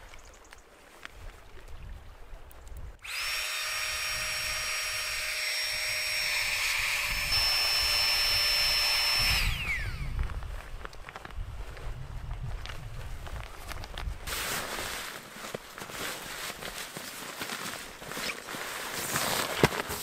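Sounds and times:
electric air pump whining: 0:03.0 - 0:10.2.

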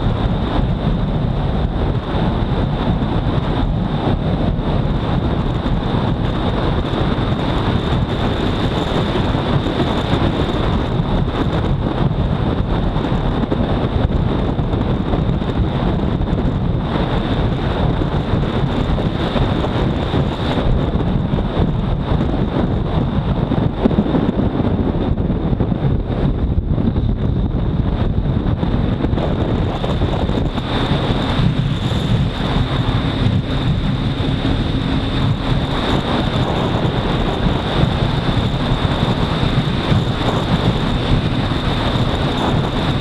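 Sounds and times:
motorcycle engine running: 0:00.0 - 0:43.0
wind buffeting microphone: 0:00.0 - 0:43.0
steady high whine: 0:23.4 - 0:43.0.

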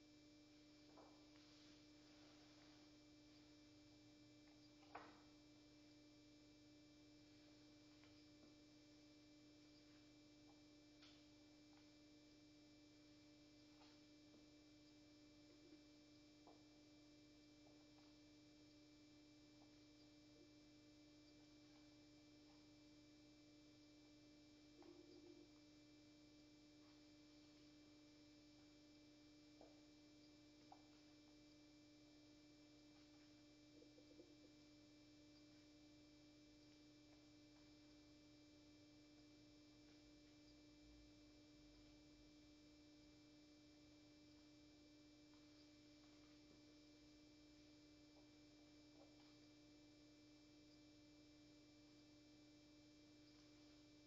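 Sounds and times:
faint steady hum: 0:00.0 - 0:54.0
faint ticks: 0:09.6 - 0:12.1, 0:13.6 - 0:51.0.

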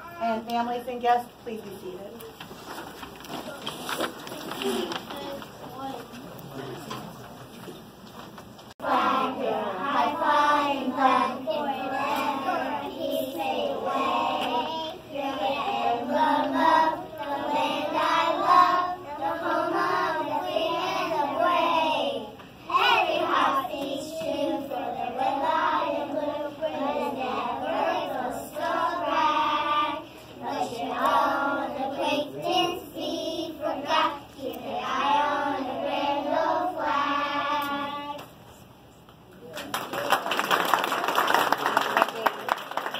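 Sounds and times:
children singing in unison: 0:08.8 - 0:38.2.

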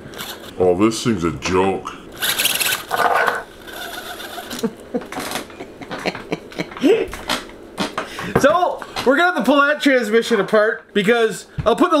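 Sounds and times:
small electric motor whirring: 0:00.1 - 0:00.5, 0:02.1 - 0:04.6.

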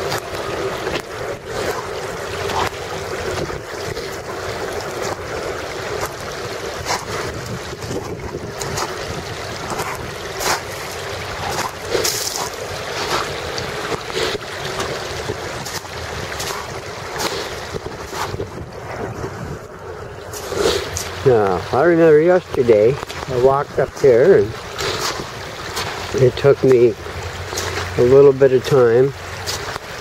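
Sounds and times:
wind on microphone: 0:00.0 - 0:21.1
footsteps crunching on pebbles: 0:05.9 - 0:14.9.

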